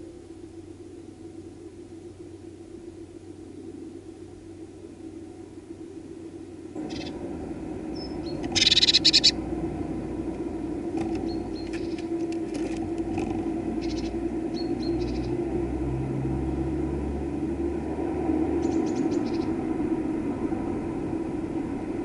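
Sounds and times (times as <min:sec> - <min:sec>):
steady low hum: 0:00.0 - 0:22.0
vehicle rumble: 0:00.0 - 0:22.0
birds chirping: 0:06.8 - 0:09.5, 0:10.9 - 0:15.4, 0:18.6 - 0:19.6.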